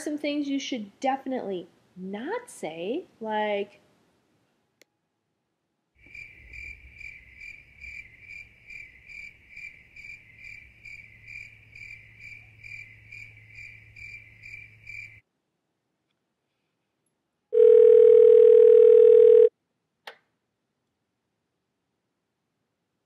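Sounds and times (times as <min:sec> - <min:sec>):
cricket chirping: 0:06.0 - 0:15.2.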